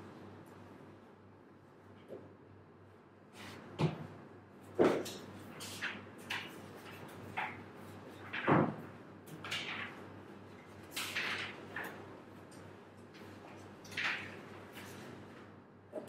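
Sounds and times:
papers and objects handled on desk: 4.6s - 15.5s.

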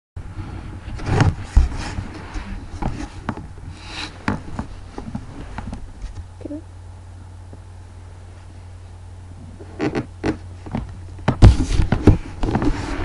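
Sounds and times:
steady low hum: 0.2s - 13.0s
camera rubbing on bedding: 0.3s - 6.2s, 11.4s - 13.0s.

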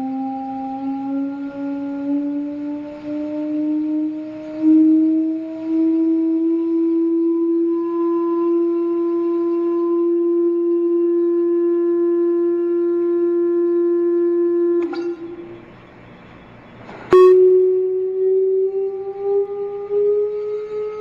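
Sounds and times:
steady resonant plate tone: 8.5s - 21.0s.

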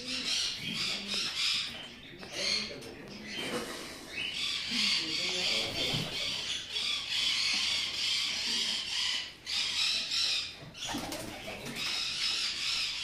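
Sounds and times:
chatter of many birds: 0.0s - 13.0s
pigeons cooing: 0.0s - 13.0s
pigeon wings flapping: 10.9s - 11.8s.

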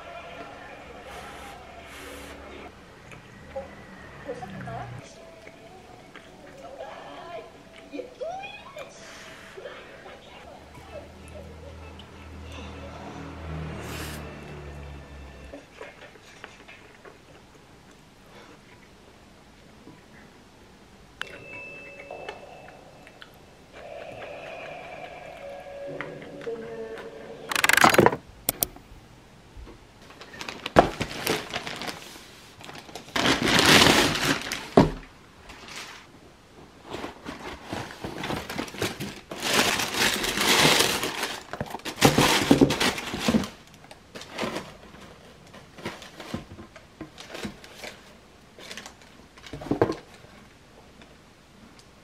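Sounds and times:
cardboard and tissue paper rustling: 30.0s - 50.4s.

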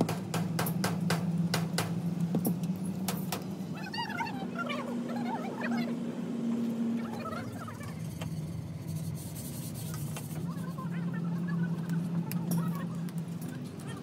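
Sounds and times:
engine running: 0.0s - 14.0s.

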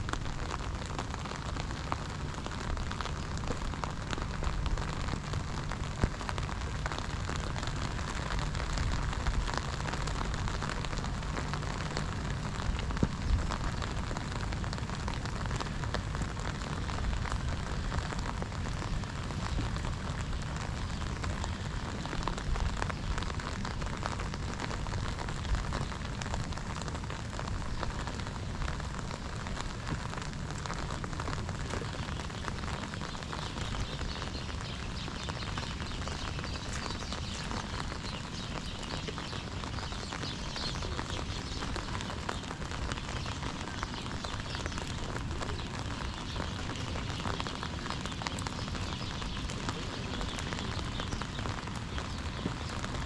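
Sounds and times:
rain on wet pavement: 0.0s - 53.0s.

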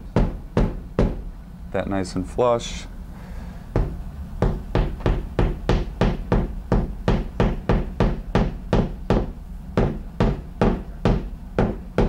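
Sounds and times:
hammer tapping wall anchor: 3.8s - 12.0s.

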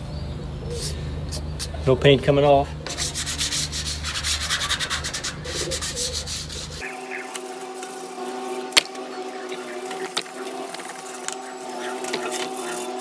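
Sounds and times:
steady hum with several tones: 0.0s - 13.0s
sandpaper rubbing on metal: 2.9s - 13.0s.

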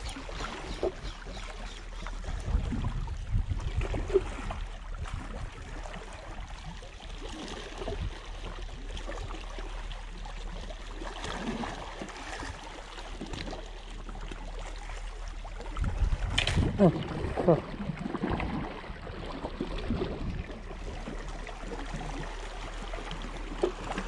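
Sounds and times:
small waves lapping on rocks: 0.0s - 24.0s.

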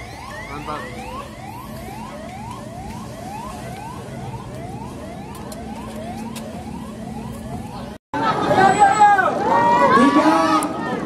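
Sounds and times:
electronic siren yelping: 0.0s - 8.0s.

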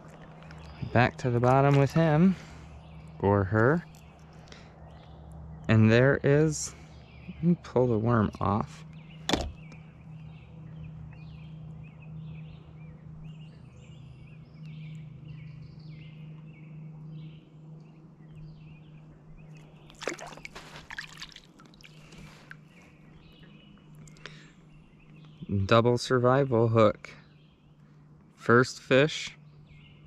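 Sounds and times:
small birds chirping: 0.0s - 30.0s
steady low hum: 0.0s - 30.0s
close rustling and scraping: 20.3s - 21.2s.

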